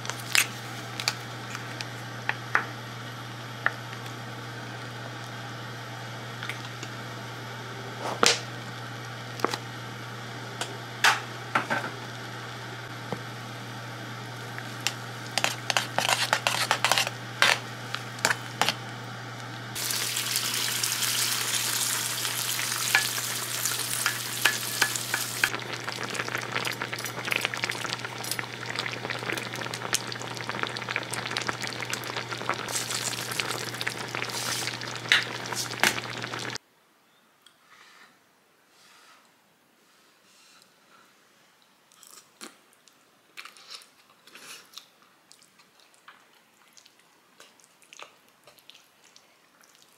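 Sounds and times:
utensil scraping a pan: 15.4s - 17.6s
sauce sizzling in a pan: 19.8s - 36.6s.

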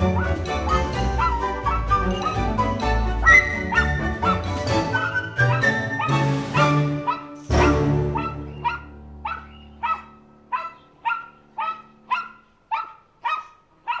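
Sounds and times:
music chord: 5.9s - 9.7s
small dog yapping: 8.2s - 14.0s.

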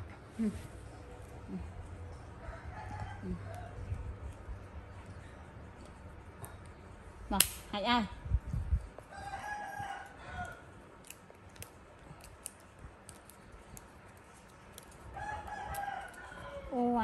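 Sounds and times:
rooster crowing: 2.4s - 3.8s, 9.1s - 10.7s, 15.2s - 17.0s.

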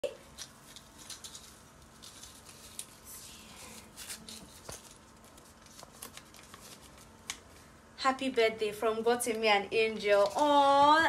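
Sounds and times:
plastic wrapping crinkling and tearing: 0.2s - 7.5s.

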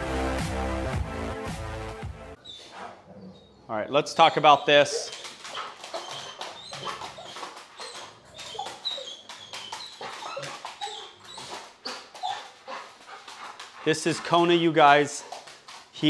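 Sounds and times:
dog whimpering: 2.4s - 15.8s
dog claws clicking on floor: 4.6s - 16.0s.

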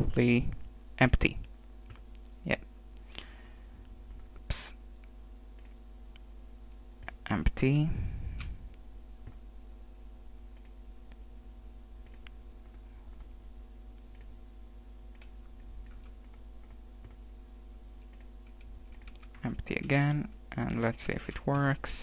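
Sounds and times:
steady low hum: 0.0s - 22.0s
mouse clicks: 12.0s - 13.3s.

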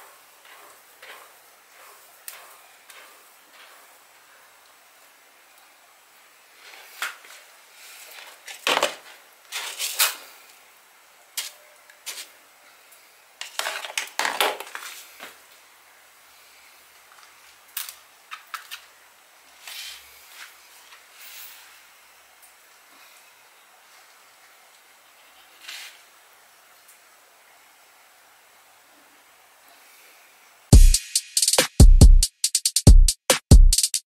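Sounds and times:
kitten scratching in cat litter: 0.0s - 4.1s, 7.9s - 10.2s.

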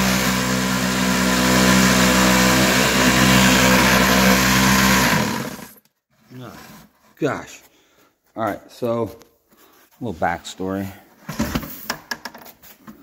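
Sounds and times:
electric sander buzzing: 0.0s - 5.8s.

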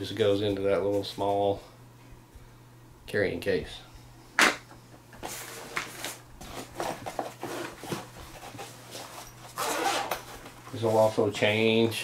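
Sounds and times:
backpack rummaging rustles: 5.2s - 11.0s.

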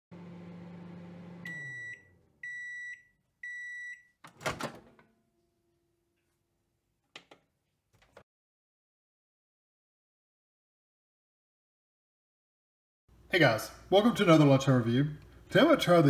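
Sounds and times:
microwave oven humming: 0.1s - 3.6s
microwave beeps: 1.2s - 4.2s.

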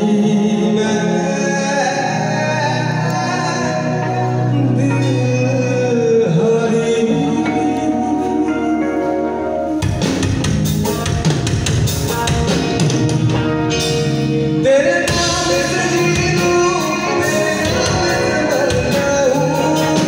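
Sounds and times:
man singing: 0.0s - 9.5s, 14.6s - 20.0s
live band playing: 0.0s - 20.0s
drum kit: 7.0s - 20.0s.

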